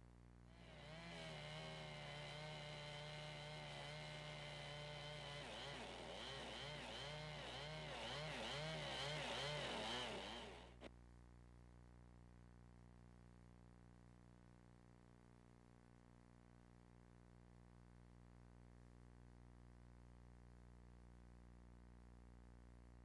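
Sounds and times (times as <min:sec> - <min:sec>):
chainsaw cutting log: 0:00.6 - 0:10.9.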